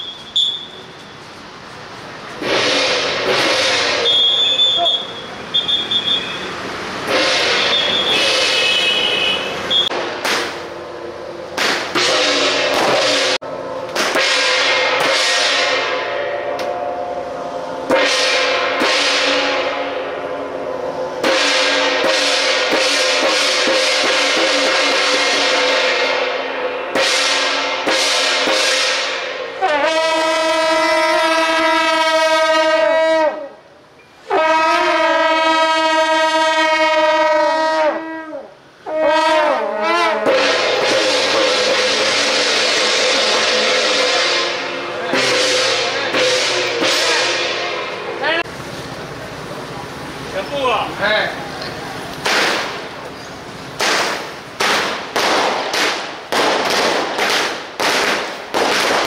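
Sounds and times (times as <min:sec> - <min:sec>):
brass horns blowing: 0:02.4 - 0:06.5, 0:07.1 - 0:10.0, 0:14.2 - 0:17.1, 0:17.9 - 0:20.4, 0:21.2 - 0:33.6, 0:34.2 - 0:48.4.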